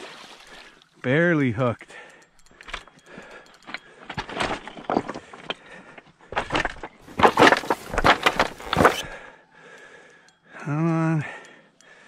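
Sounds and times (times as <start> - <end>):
boots scraping on rocks: 6.3 - 9.1.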